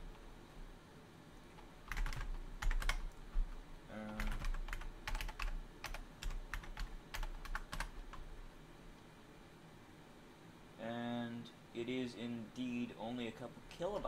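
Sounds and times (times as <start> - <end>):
keyboard typing: 1.5 - 8.3.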